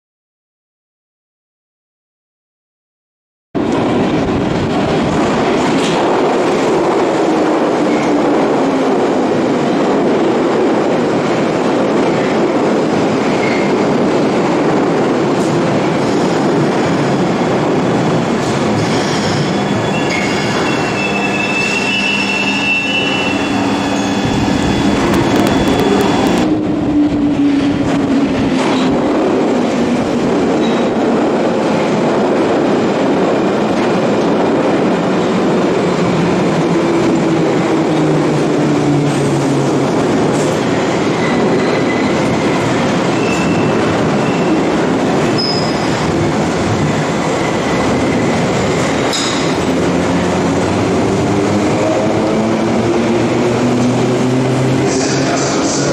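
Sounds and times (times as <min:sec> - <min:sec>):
low train whine: 0:03.6 - 0:55.9
train wheels rumbling on rail: 0:03.6 - 0:55.9
high wheel squeal: 0:18.8 - 0:26.4, 0:45.3 - 0:46.0.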